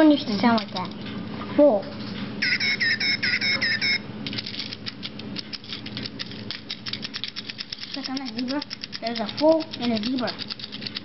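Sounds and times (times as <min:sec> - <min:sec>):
fast clicking rattle: 0:04.2 - 0:11.0.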